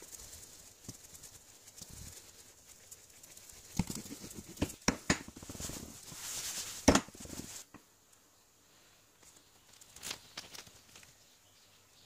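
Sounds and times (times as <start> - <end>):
cloth rubbing: 0.0 - 7.7.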